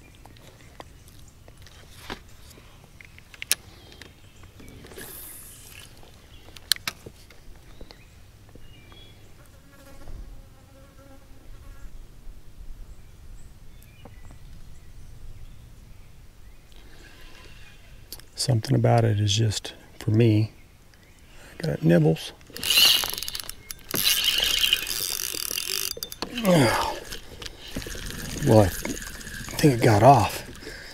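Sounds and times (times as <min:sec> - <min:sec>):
fishing reel clicks: 0:22.5 - 0:30.9
fly buzzing: 0:22.5 - 0:30.9.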